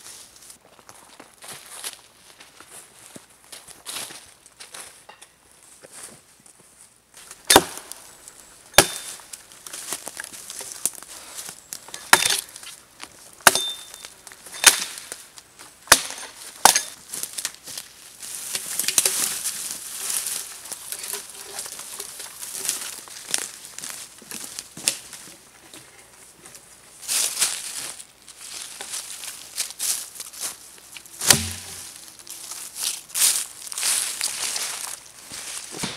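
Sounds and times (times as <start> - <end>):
axe chopping log: 7.4 - 8.0, 8.8 - 9.2, 12.0 - 12.5, 13.4 - 13.9, 14.6 - 15.0, 15.9 - 17.0, 31.2 - 32.0
wood cracking and scraping: 18.4 - 23.6.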